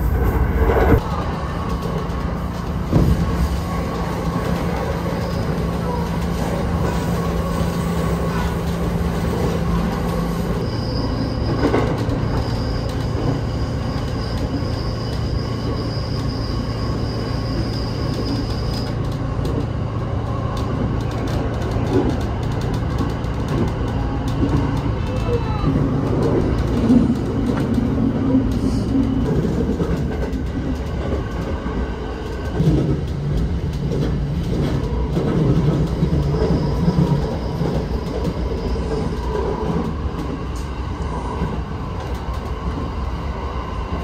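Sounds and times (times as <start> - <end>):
train rumbling on rails: 0.0 - 44.0.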